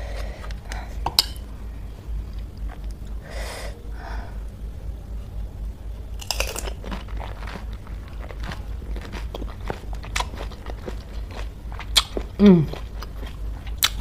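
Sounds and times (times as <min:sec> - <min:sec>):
crisp crunches: 0:06.2 - 0:12.2
person chewing: 0:06.2 - 0:14.0.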